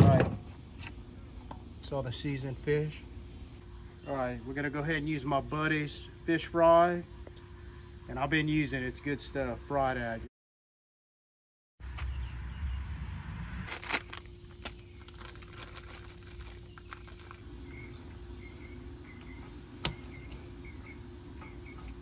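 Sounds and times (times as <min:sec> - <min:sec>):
steady low hum: 0:00.0 - 0:10.3, 0:11.8 - 0:22.0
packet crinkling: 0:13.7 - 0:17.5
hands rustling fish in mix: 0:13.7 - 0:17.6.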